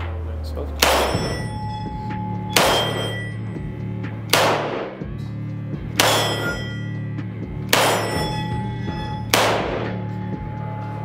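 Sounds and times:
background music: 0:00.0 - 0:11.0
pistol shots with ringing tail: 0:00.8 - 0:01.8, 0:02.5 - 0:03.4, 0:04.3 - 0:05.1, 0:05.9 - 0:06.9, 0:07.6 - 0:10.1.

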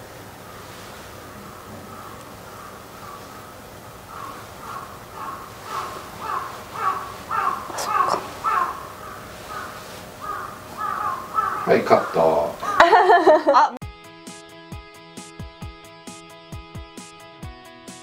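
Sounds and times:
crow cawing: 0:00.4 - 0:13.0.

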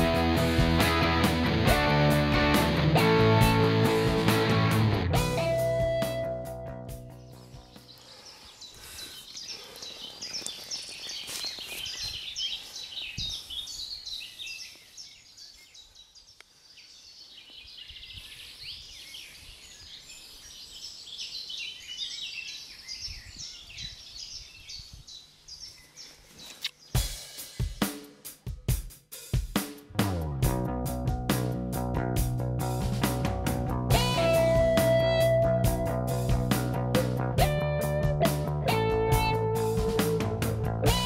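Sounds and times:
birds chirping and trilling: 0:06.9 - 0:27.8.

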